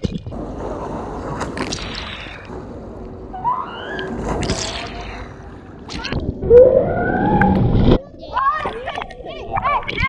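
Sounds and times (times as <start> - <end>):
pool water splashing: 0.3 - 6.4.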